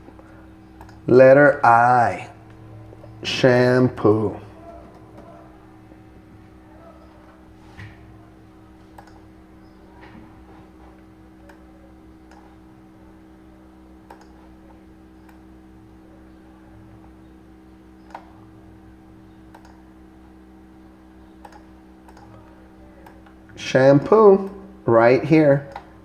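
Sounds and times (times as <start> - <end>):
low electrical hum: 0.0 - 26.0
computer mouse clicks: 0.8 - 1.0, 8.9 - 9.3, 12.2 - 12.5, 14.0 - 14.4, 18.0 - 18.3, 19.5 - 19.8, 21.4 - 22.4, 25.7 - 25.9.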